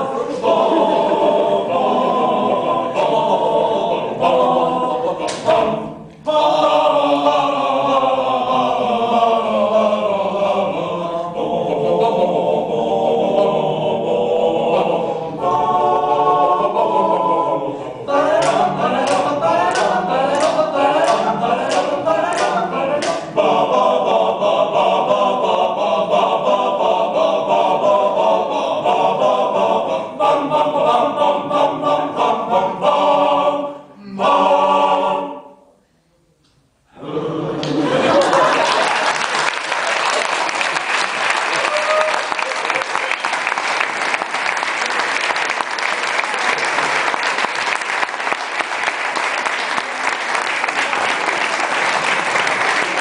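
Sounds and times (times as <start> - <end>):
choir singing a cappella: 0.0 - 41.6.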